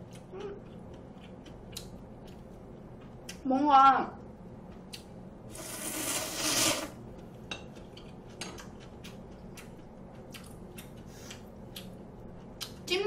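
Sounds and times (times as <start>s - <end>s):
mouth clicks and chewing: 0.0s - 2.4s, 8.0s - 12.9s
loud slurp of noodles: 5.5s - 7.0s.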